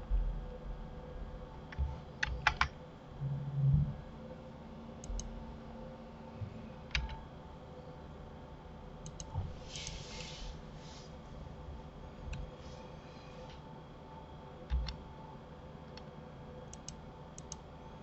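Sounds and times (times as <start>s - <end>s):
keyboard keystrokes: 2.2s - 2.7s, 9.0s - 10.0s, 16.7s - 17.6s
low hum: 3.0s - 8.2s.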